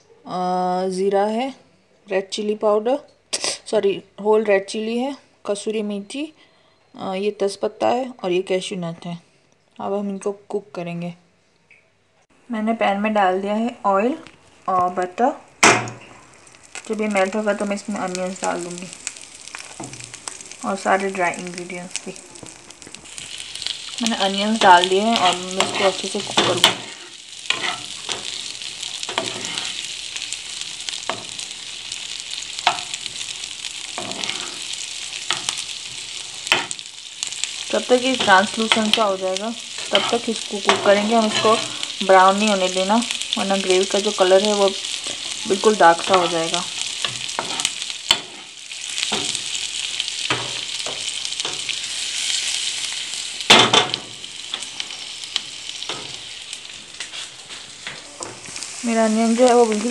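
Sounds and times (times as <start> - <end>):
onions sizzling in frying pan: 12.8 - 59.9
metal spoon scraping pan: 24.6 - 29.9, 34.0 - 35.6, 39.8 - 42.0, 47.0 - 48.5.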